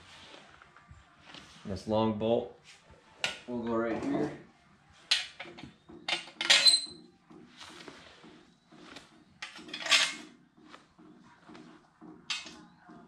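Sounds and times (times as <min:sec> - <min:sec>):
metal parts clinking and rattling: 0:06.1 - 0:06.9, 0:09.4 - 0:10.2.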